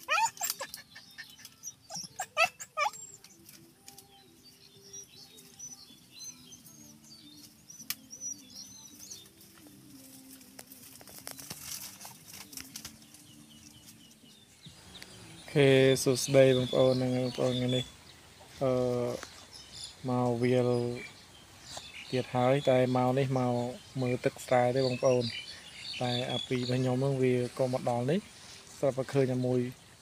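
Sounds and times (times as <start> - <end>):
twigs and canes crackling: 3.2 - 4.2, 7.3 - 15.2.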